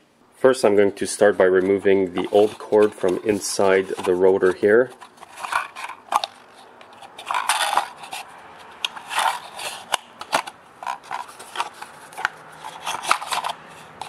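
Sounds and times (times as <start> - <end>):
pull cord scraping and rubbing: 1.2 - 14.0.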